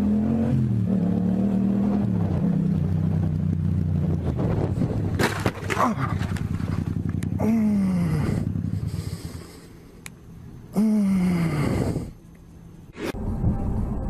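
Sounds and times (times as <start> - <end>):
motorcycle engine running: 2.1 - 10.6
motorcycle crash impact: 5.1 - 7.0.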